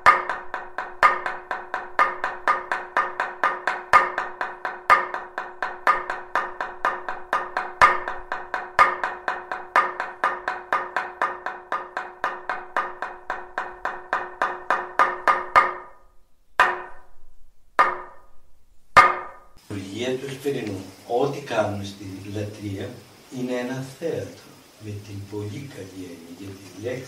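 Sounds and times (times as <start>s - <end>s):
wooden knocks on a semantron: 0.0s - 16.0s, 16.6s - 17.1s, 17.8s - 18.2s, 19.0s - 19.4s.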